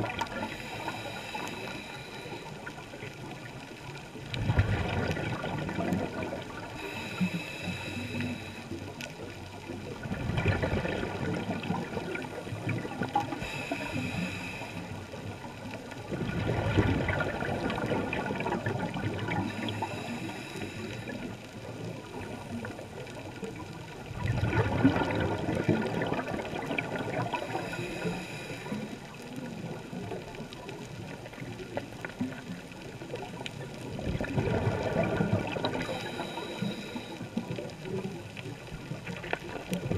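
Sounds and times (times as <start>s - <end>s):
high hiss of inhale: 0.4s - 2.8s, 6.8s - 8.9s, 13.3s - 15.2s, 19.3s - 21.4s, 27.3s - 29.1s, 35.7s - 37.3s
exhaled bubbles rushing: 4.3s - 7.0s, 9.8s - 13.5s, 16.0s - 20.1s, 23.5s - 27.8s, 31.3s - 36.4s, 37.4s - 39.9s.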